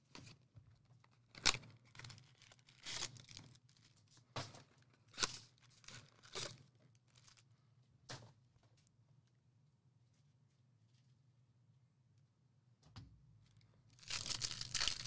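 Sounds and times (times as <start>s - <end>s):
wrapping being torn open: 1.4s - 3.8s, 14.0s - 15.0s.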